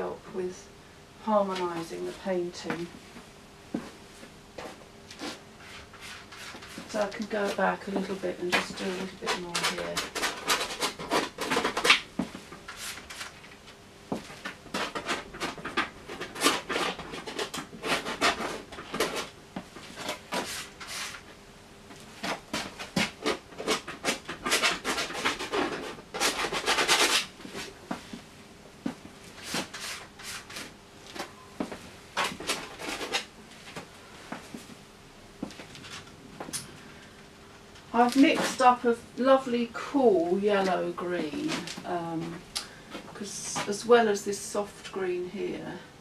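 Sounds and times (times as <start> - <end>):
palette knife scraping paint: 5.2 - 12.0, 14.7 - 19.3, 22.3 - 27.7.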